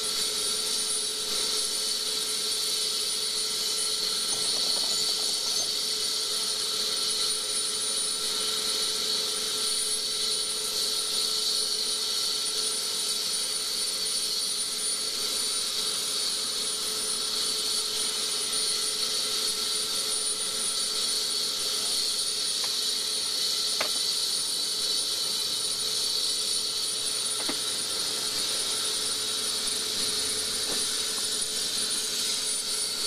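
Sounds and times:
helicopter turbine whine: 0.0s - 33.0s.

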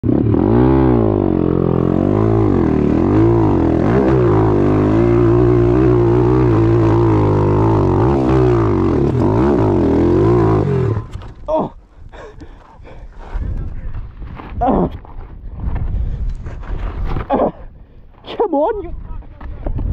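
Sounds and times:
pit bike engine revving: 0.0s - 11.2s.

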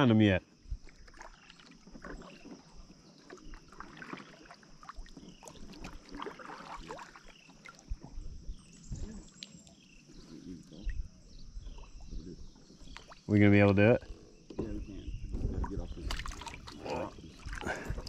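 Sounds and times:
paddle splashing in water: 0.8s - 8.2s, 15.6s - 18.0s.

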